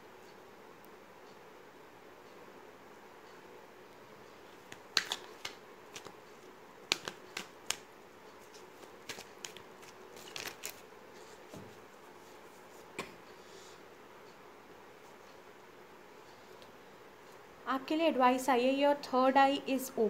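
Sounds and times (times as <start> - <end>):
cards being shuffled: 4.5 - 10.8.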